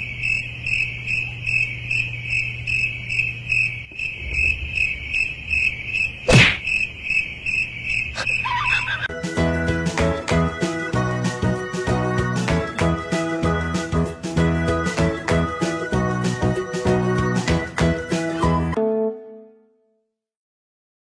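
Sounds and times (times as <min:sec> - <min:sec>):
sharp knock: 0:06.3 - 0:06.7
music: 0:09.1 - 0:20.1.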